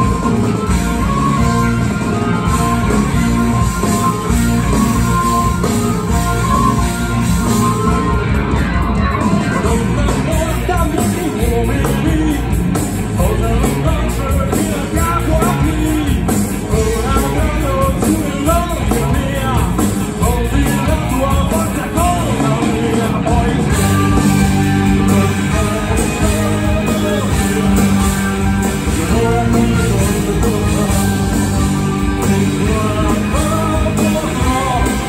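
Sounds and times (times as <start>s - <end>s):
live rock band playing: 0.0s - 35.0s
man singing lead: 9.2s - 35.0s.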